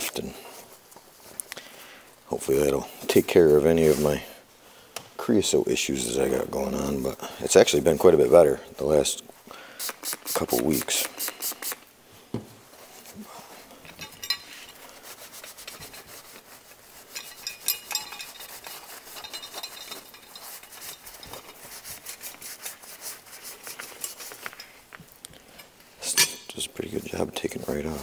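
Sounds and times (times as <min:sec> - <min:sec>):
paper towel scrubbing metal: 0:14.7 - 0:24.6, 0:26.8 - 0:28.0.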